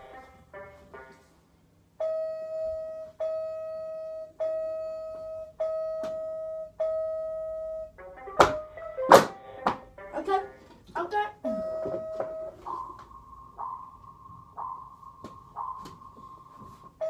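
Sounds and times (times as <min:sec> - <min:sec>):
electronic toy tune: 0:02.0 - 0:09.1, 0:11.4 - 0:15.0
long electronic beeps: 0:11.5 - 0:16.9.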